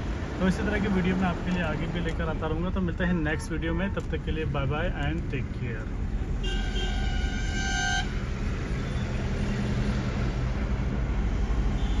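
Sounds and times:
road and engine noise in car: 0.0s - 12.0s
vehicle horn: 6.4s - 8.2s.

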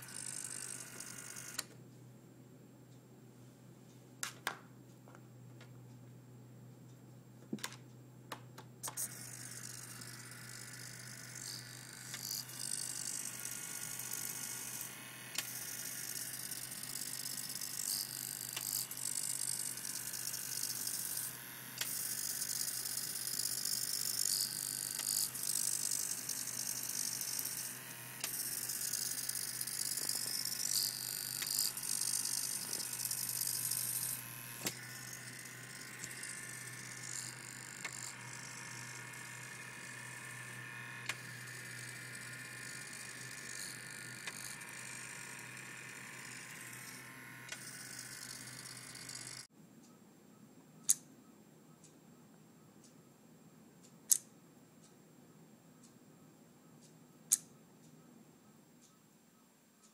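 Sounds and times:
small motor gears whirring: 0.0s - 1.7s, 8.8s - 49.5s
sharp clicks: 7.6s - 49.5s, 54.1s - 54.3s.

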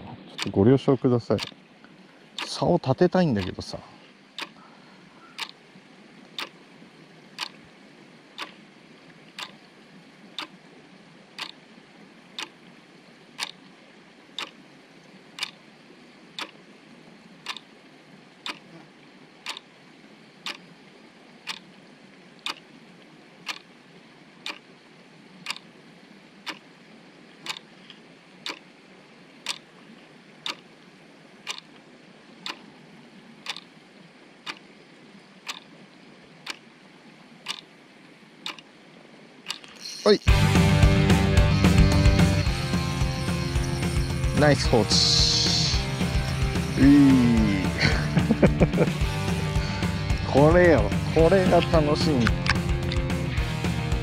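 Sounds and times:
faint steady hiss: 0.0s - 54.0s
sharp ticks: 1.3s - 1.6s, 2.4s - 2.6s, 3.4s - 3.6s, 4.4s - 4.6s, 5.4s - 5.6s, 6.4s - 6.6s, 7.4s - 7.6s, 8.4s - 8.6s, 9.4s - 9.6s, 11.4s - 11.6s, 12.4s - 12.6s, 13.4s - 13.6s, 14.4s - 14.6s, 15.4s - 15.6s, 16.4s - 16.6s, 17.4s - 17.7s, 18.4s - 18.7s, 19.4s - 19.7s, 20.4s - 20.7s, 21.5s - 21.7s, 22.4s - 22.6s, 23.4s - 23.7s, 24.4s - 24.7s, 25.5s - 25.7s, 26.4s - 26.7s, 27.4s - 27.7s, 28.4s - 28.6s, 29.5s - 29.7s, 30.4s - 30.7s, 31.5s - 31.8s, 32.4s - 32.7s, 33.5s - 33.7s, 34.5s - 34.7s, 35.5s - 35.7s, 37.5s - 37.7s, 38.4s - 38.7s, 39.5s - 40.6s, 41.7s - 54.0s.

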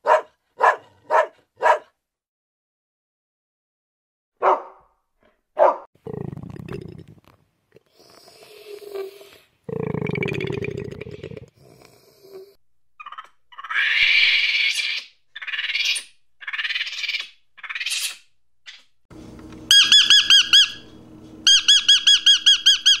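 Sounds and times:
shrill monkey screeches: 13.0s - 18.9s, 19.7s - 20.8s, 21.5s - 23.0s
high chirps: 19.7s - 20.9s, 21.5s - 23.0s.

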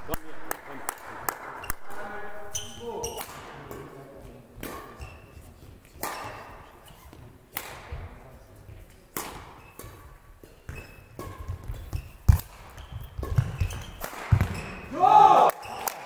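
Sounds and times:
racket striking shuttlecock: 5.8s - 8.0s, 9.1s - 14.8s.

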